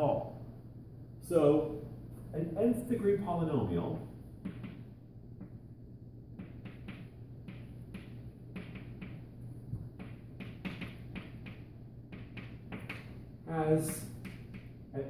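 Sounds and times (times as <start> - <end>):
steady low hum: 0.0 - 15.0
chalk writing on blackboard: 6.4 - 9.2, 10.0 - 13.0.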